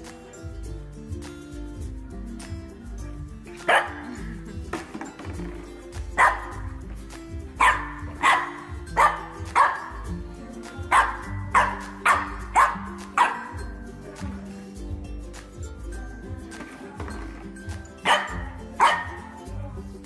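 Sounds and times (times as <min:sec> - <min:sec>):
background music: 0:00.0 - 0:20.0
dog barking: 0:03.7 - 0:04.2, 0:06.2 - 0:06.6, 0:07.6 - 0:10.0, 0:10.9 - 0:13.6, 0:18.0 - 0:19.3.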